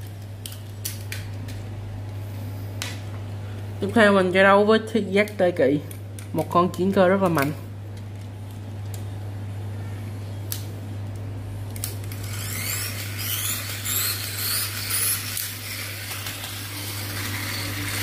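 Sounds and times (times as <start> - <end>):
steady low hum: 0.0 - 18.0
toy car pull-back motor whirring: 12.2 - 18.0.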